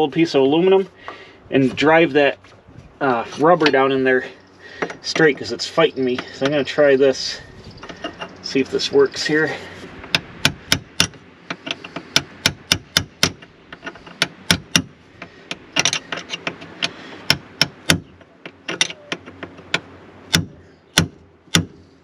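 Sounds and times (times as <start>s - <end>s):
hammer tapping on aluminium: 10.1s - 21.8s.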